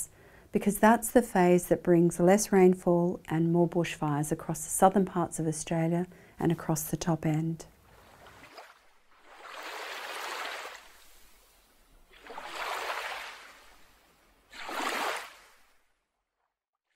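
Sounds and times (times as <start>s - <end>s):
ocean waves washing in: 7.8s - 15.8s.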